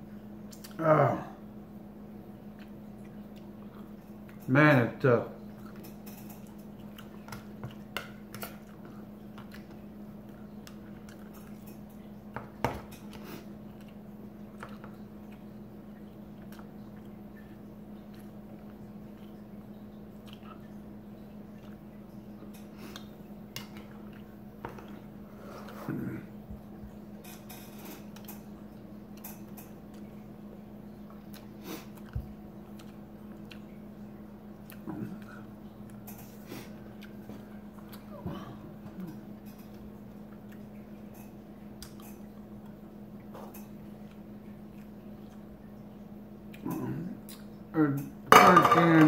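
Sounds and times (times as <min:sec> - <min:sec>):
steady low hum: 0:00.0 - 0:49.0
chewing: 0:02.5 - 0:04.5, 0:05.6 - 0:25.9, 0:31.0 - 0:45.8, 0:46.5 - 0:48.1.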